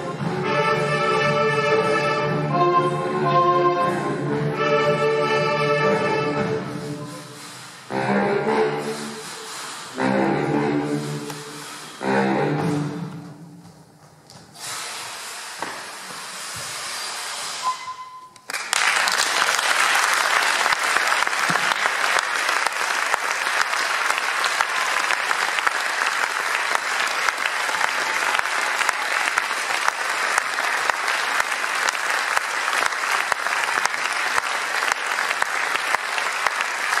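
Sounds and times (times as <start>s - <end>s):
audience applauding: 18.4s - 37.0s.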